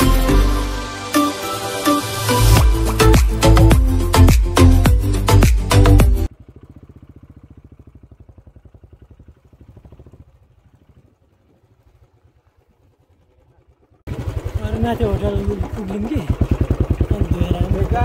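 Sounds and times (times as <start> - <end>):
background music: 0.0 - 6.3
faint engine running: 2.3 - 18.0.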